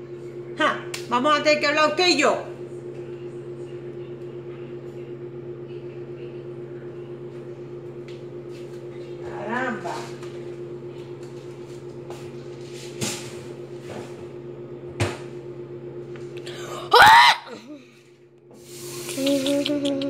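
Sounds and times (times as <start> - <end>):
microwave oven humming: 0.0 - 20.0
person crying out: 16.5 - 17.8.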